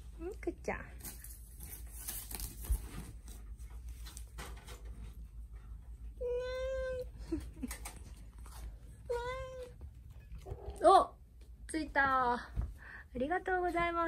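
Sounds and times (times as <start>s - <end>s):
cat meowing: 9.1s - 9.8s.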